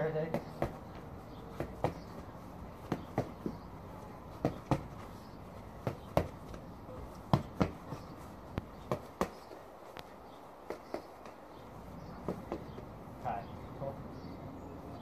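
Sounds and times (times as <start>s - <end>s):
boxing gloves smacking pads: 0.2s - 3.7s, 4.3s - 11.6s, 12.2s - 12.9s.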